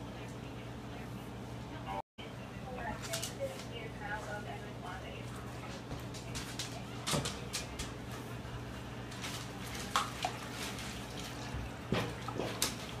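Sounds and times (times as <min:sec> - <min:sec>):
steady low hum: 0:00.0 - 0:13.0
water splashing in metal tub: 0:09.6 - 0:13.0.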